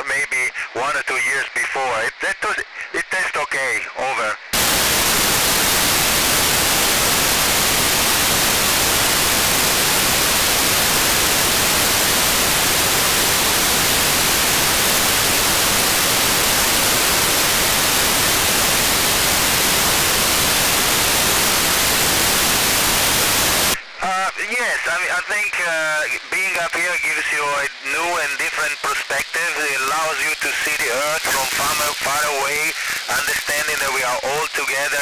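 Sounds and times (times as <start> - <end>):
radio static hiss: 0.0 - 35.0.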